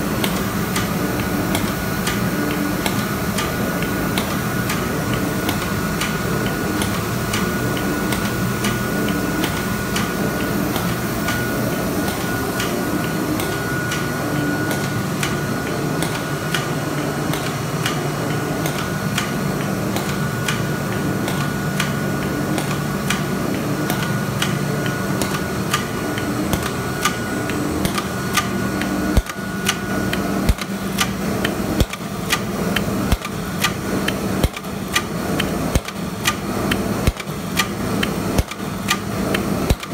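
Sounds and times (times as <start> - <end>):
thin steady whine: 0.0 - 34.4
machine hum of belts and rollers: 0.0 - 39.9
fast sharp machine clicks: 14.7 - 39.9.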